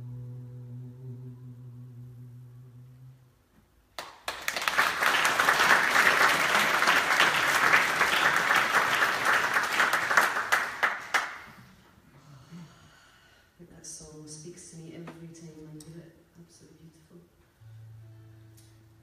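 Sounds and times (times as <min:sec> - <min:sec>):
audience applause: 0:04.0 - 0:11.5.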